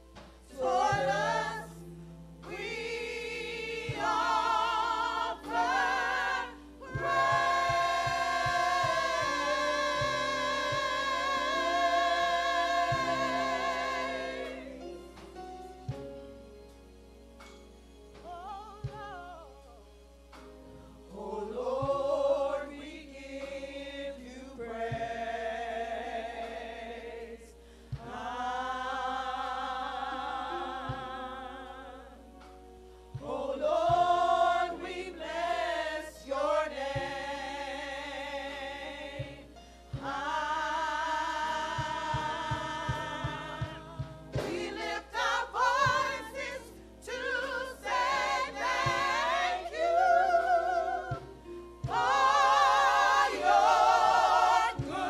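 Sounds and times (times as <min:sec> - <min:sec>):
women singing gospel: 0:00.0 - 0:16.0, 0:18.2 - 0:19.9, 0:21.0 - 0:55.0.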